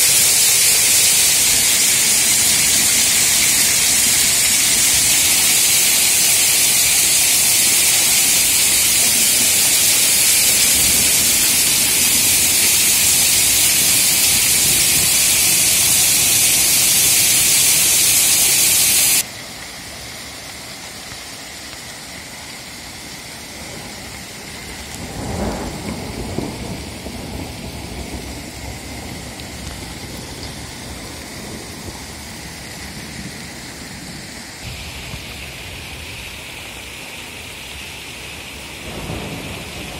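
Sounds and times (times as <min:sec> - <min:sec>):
heavy rain pouring: 0:00.0 - 0:39.9
low rumble of thunder: 0:08.0 - 0:16.0, 0:23.8 - 0:34.2, 0:38.8 - 0:39.9.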